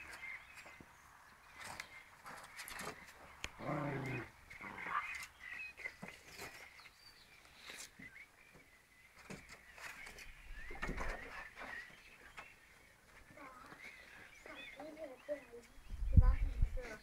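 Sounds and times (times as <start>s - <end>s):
puppies growling and yapping: 3.6s - 5.3s.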